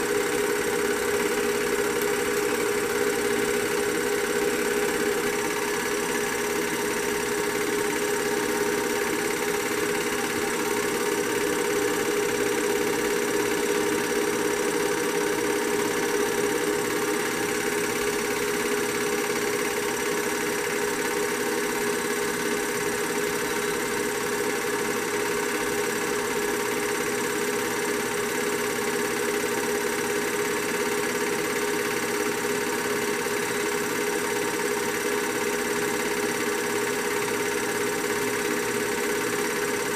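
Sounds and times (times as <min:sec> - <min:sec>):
film projector running: 0:00.0 - 0:39.9.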